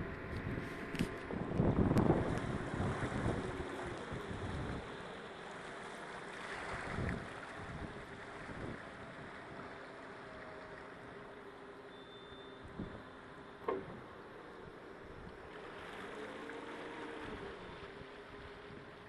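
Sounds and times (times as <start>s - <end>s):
wind buffeting microphone: 0.0s - 5.0s, 6.7s - 9.6s
water rushing along hull: 0.0s - 19.0s.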